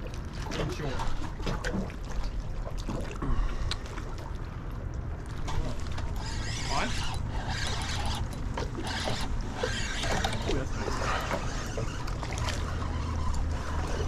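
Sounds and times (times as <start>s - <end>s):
water lapping against hull: 0.0s - 14.0s
fishing reel whirring: 6.0s - 14.0s.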